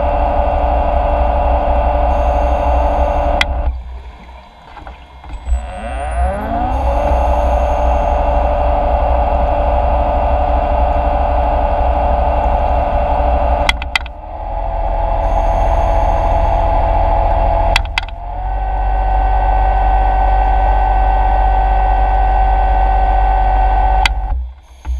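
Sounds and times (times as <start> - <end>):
underwater motor whine: 0.0 - 24.9
motor click: 13.6 - 14.1, 17.7 - 18.2.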